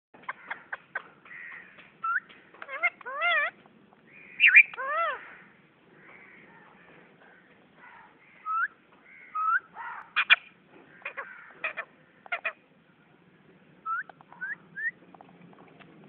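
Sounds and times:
parakeet squawking: 0.2 - 5.5, 7.9 - 12.6
parakeet whistling: 4.2 - 5.2, 13.8 - 15.0.

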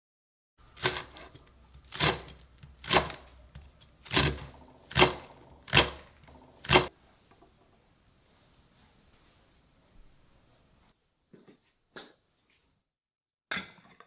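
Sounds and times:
knife chopping on wooden board: 0.8 - 6.9.

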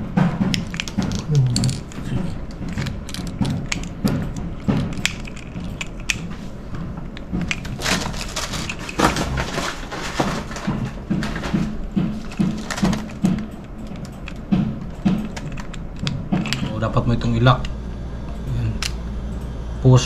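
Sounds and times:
styrofoam crunching: 7.8 - 10.7
plastic and metal handling clicks: 12.2 - 16.7.

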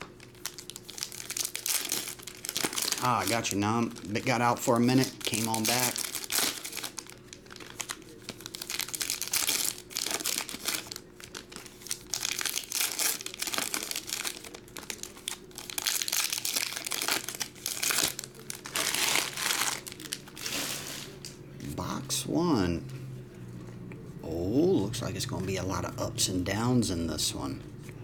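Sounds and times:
foil wrappers crinkling: 0.0 - 21.4.

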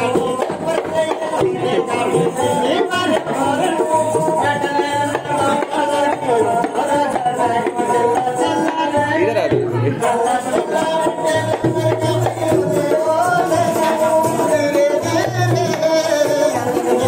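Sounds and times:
steady drum beat: 0.0 - 17.0.

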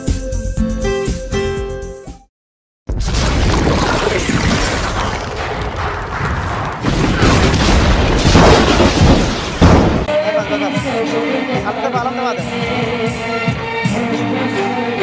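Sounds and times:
dense rumbling with deep booms: 2.9 - 10.1.

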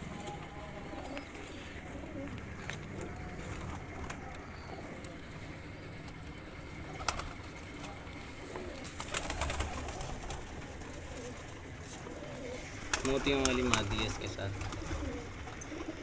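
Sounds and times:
pigeons cooing: 0.0 - 16.0.

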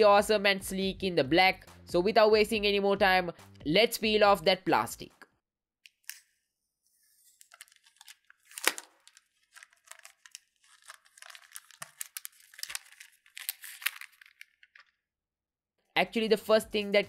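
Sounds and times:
plastic film crinkling: 7.2 - 15.0
plastic film snapping: 7.4 - 14.9.

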